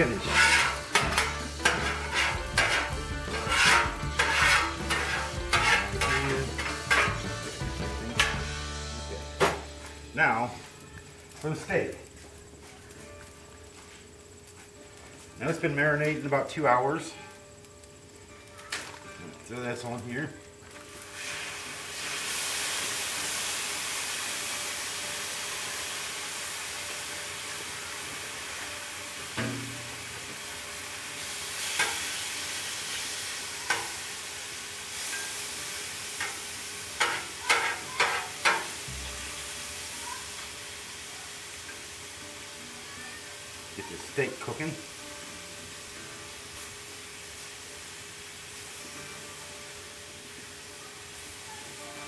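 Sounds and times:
metal spatula scraping griddle: 0.0s - 8.6s, 31.6s - 32.3s, 33.6s - 34.1s, 35.0s - 35.5s, 36.1s - 39.4s
food sizzling: 0.0s - 52.0s.

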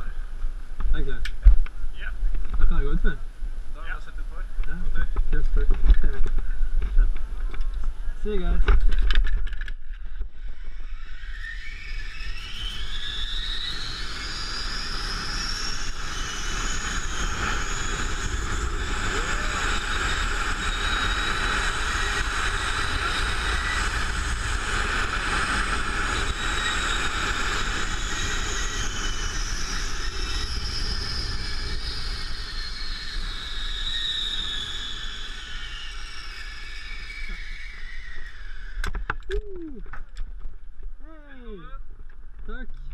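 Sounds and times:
pulley wheels whining on cable: 9.5s - 39.3s.

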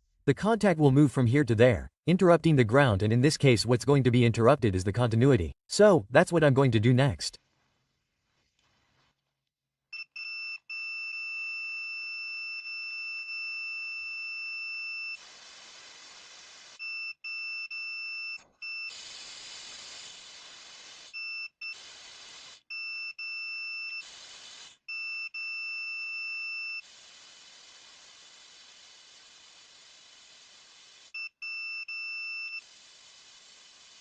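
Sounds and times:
multimeter continuity beep: 10.0s - 15.2s, 24.9s - 26.8s, 31.2s - 32.6s
compressed air hissing: 15.2s - 16.8s, 18.9s - 22.7s, 24.0s - 24.8s, 26.8s - 31.1s, 32.6s - 34.0s.

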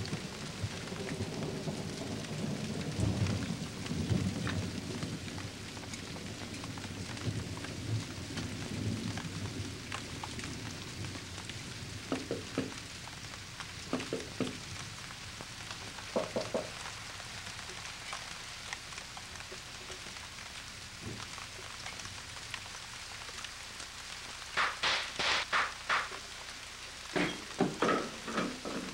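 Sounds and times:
thunder rumble: 0.0s - 12.8s
steady rain hiss: 0.0s - 28.9s
soft knocks: 12.1s - 12.8s, 13.9s - 14.6s, 16.1s - 16.7s, 27.2s - 28.9s.

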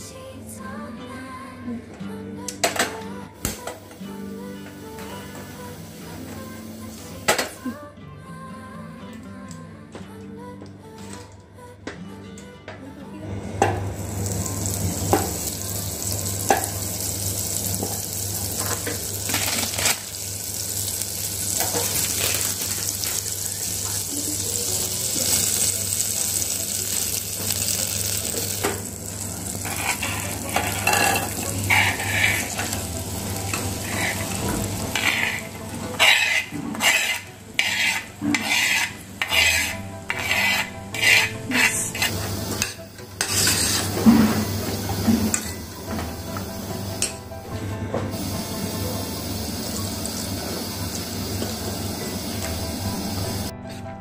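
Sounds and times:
butter sizzling in a pot: 14.0s - 47.2s, 48.1s - 53.5s
metal spoon scraping steel pot: 29.6s - 32.8s, 33.8s - 42.2s, 43.2s - 44.0s.

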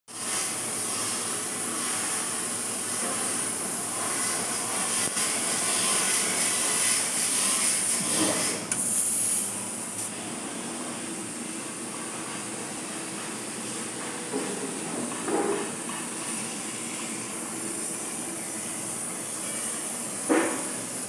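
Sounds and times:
laser cutter hissing: 0.2s - 21.0s.

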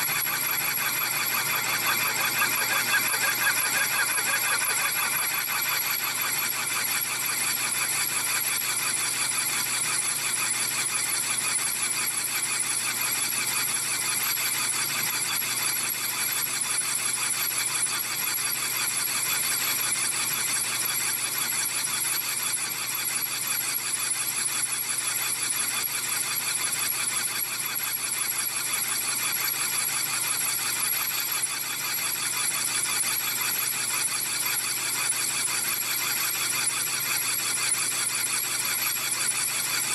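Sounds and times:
lathe tool squealing on steel: 0.1s - 6.8s.

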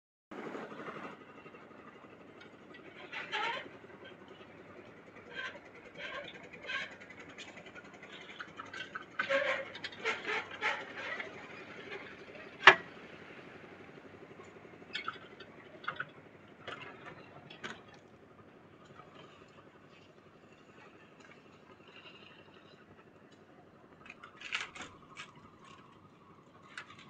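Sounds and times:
wheelbarrow clanks and scrapes: 8.1s - 12.9s.

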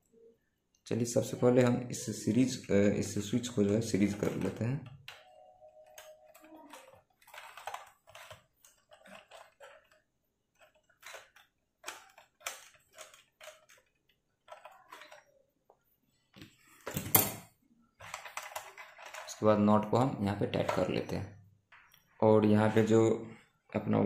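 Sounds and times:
wire winding clicks and scrapes: 5.8s - 15.4s, 18.0s - 19.5s.

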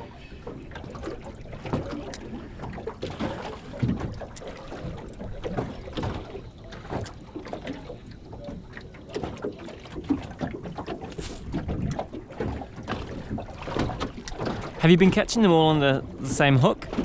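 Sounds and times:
light knocks and clatter in boat: 0.0s - 17.0s
water lapping at hull: 0.0s - 17.0s
wind on microphone: 11.1s - 12.1s.

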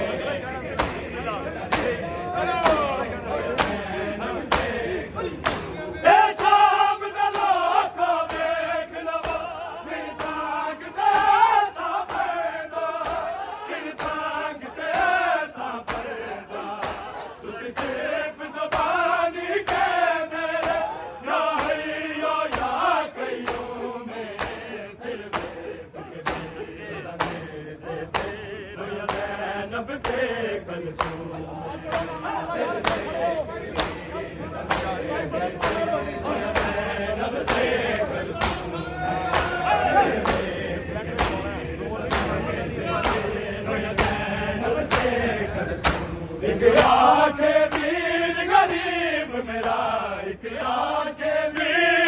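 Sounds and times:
men chanting in unison: 0.0s - 52.0s
hands slapping chests: 0.7s - 2.0s, 2.6s - 2.8s, 3.6s - 3.8s, 4.5s - 4.8s, 5.4s - 5.7s, 9.2s - 9.5s, 10.1s - 13.4s, 14.0s - 15.2s, 15.8s - 17.1s, 18.7s - 20.0s, 20.6s - 20.9s, 21.6s - 21.9s, 22.5s - 22.8s, 23.4s - 24.7s, 25.3s - 25.6s, 26.2s - 26.6s, 27.2s - 27.5s, 28.1s - 28.4s, 29.1s - 29.4s, 31.0s - 31.2s, 31.9s - 32.2s, 32.8s - 33.1s, 33.7s - 35.0s, 35.6s - 35.9s, 36.5s - 36.8s, 37.4s - 38.7s, 39.3s - 39.6s, 40.2s - 40.5s, 41.2s - 41.4s, 42.1s - 42.4s, 43.0s - 43.4s, 44.0s - 45.2s, 45.8s - 47.1s, 47.7s - 48.0s.

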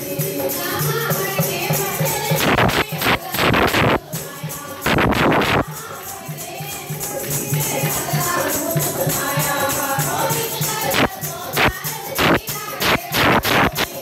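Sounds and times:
jingling hand percussion: 0.0s - 14.0s
woman singing into microphone: 0.0s - 14.0s
loud distorted strokes: 2.4s - 4.0s, 4.8s - 5.7s, 10.9s - 14.0s.

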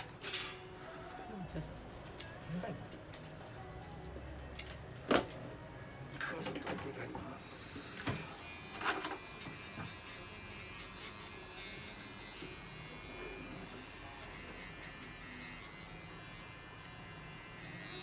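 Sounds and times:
electric pet clipper buzzing: 7.8s - 18.0s.

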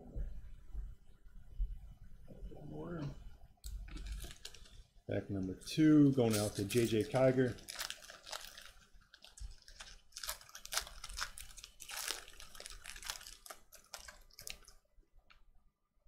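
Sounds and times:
foil wrapper tearing and crinkling: 3.9s - 4.8s, 6.2s - 14.8s.

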